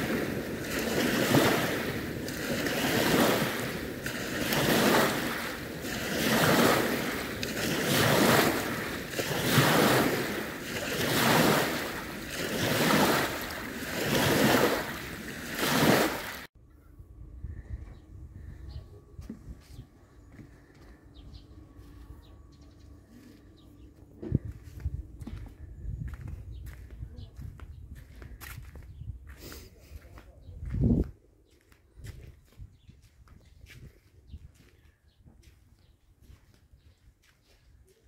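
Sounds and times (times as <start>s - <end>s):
waves washing over pebbles: 0.0s - 16.5s.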